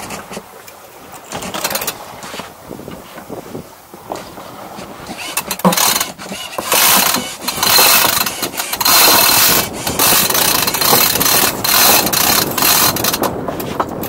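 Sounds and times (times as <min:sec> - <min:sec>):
winch ratcheting: 0:01.2 - 0:02.0, 0:05.1 - 0:14.0.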